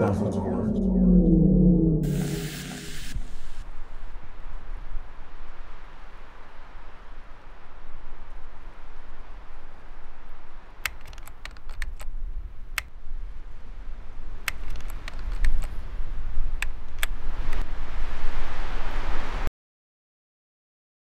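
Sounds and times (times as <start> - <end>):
steady hiss and low hum: 2.1 - 19.3
keystroke clicks: 10.8 - 12.1, 14.5 - 15.7.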